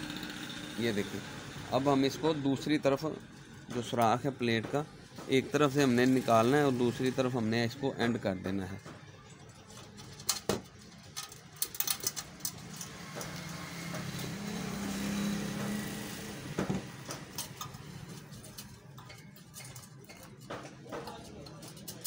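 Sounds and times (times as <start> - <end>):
wire and pliers clinking: 9.6 - 16.0, 16.9 - 22.0.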